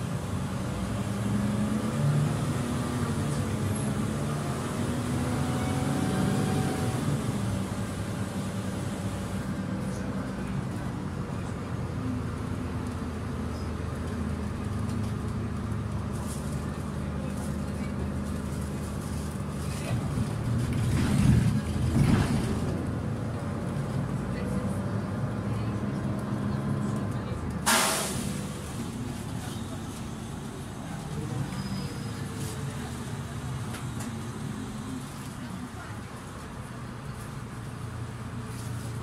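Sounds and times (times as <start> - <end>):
bus engine hum: 0.0 - 39.0
ride rumble: 0.0 - 39.0.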